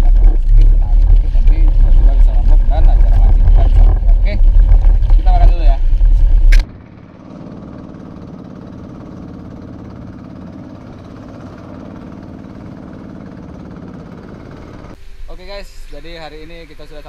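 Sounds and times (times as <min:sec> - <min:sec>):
boat engine running: 0:00.0 - 0:17.0.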